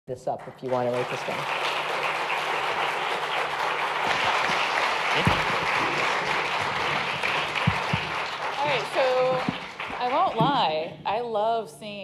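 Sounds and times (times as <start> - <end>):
audience applauding: 0.4 - 11.0.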